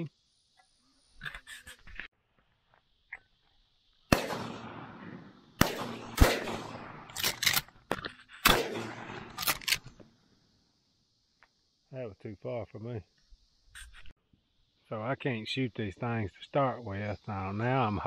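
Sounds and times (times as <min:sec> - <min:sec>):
shotgun shots echoing: 0:04.1 - 0:07.6, 0:08.4 - 0:09.8
quieter sharp cracks: 0:04.1 - 0:10.2.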